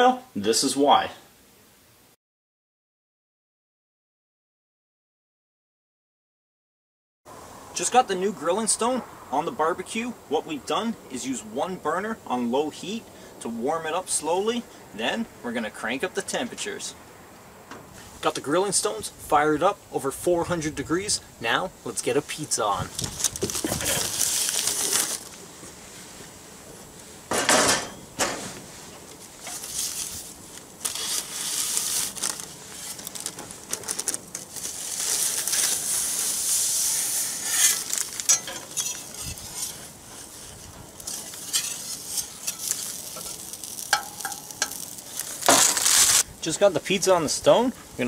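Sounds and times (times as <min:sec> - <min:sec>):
sizzling: 0:21.9 - 0:48.0
parchment paper rustling: 0:22.6 - 0:26.2, 0:28.6 - 0:46.2
metal spatula scraping on stone: 0:35.4 - 0:45.0.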